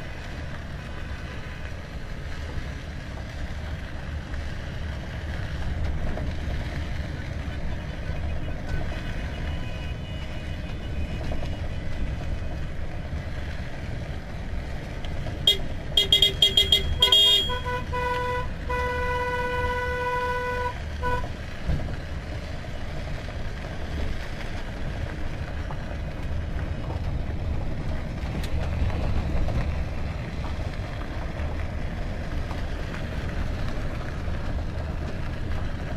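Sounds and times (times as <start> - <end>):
cars driving on gravel: 0.0 - 35.9
car horns honking: 15.5 - 21.3.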